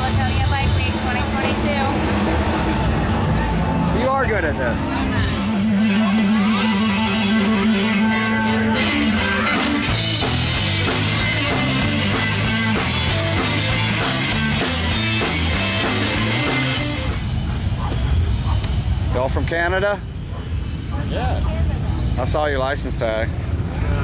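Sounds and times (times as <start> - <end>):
electric guitar riff: 0.0 - 17.4
bass guitar: 0.0 - 24.0
drums: 0.0 - 24.0.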